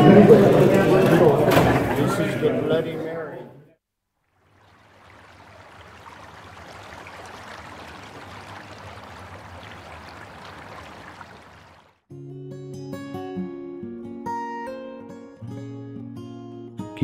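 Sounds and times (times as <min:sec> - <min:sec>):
acoustic guitar music: 0:12.1 - 0:17.0.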